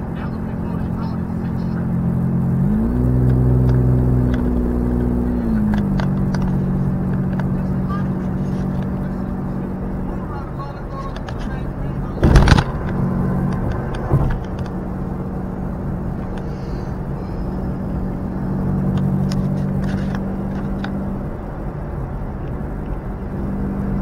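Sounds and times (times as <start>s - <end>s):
car engine drone: 0.0s - 24.0s
tyre and road noise: 0.0s - 24.0s.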